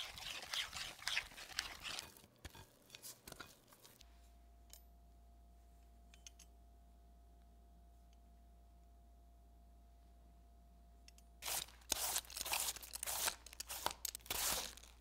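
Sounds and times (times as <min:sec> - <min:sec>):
whisk scraping sticky dough: 0:00.0 - 0:04.0
faint steady hum: 0:00.0 - 0:15.0.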